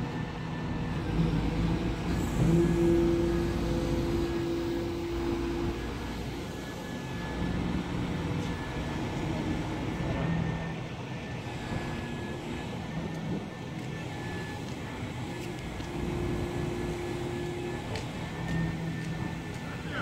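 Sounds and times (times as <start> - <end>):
excavator diesel engine: 0.0 - 20.0
hydraulic tones changing pitch: 0.9 - 7.5.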